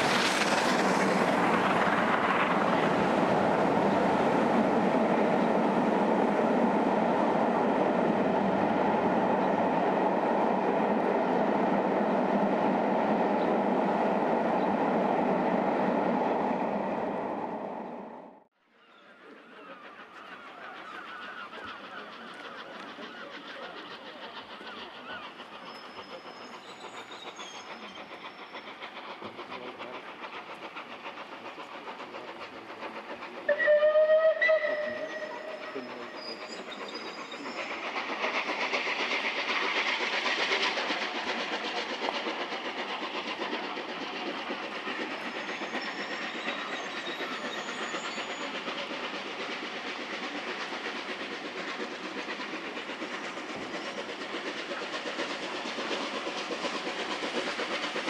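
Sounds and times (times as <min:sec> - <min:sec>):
steady rail noise: 0:00.0 - 0:58.0
train whistle: 0:33.5 - 0:35.8.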